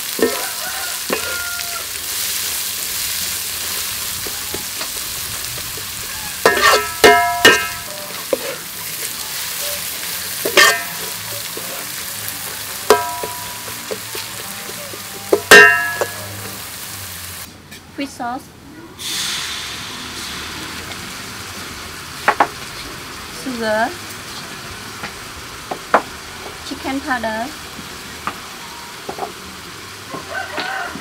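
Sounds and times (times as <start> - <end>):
utensil clanging on wok: 0.0 - 2.8, 3.6 - 17.0
food sizzling in oil in a wok: 0.0 - 17.5, 19.0 - 31.0.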